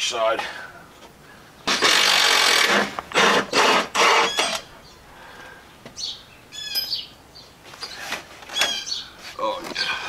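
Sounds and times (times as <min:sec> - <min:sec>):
cordless power tool whirring: 0:01.7 - 0:04.7
high squeaks: 0:01.7 - 0:04.7.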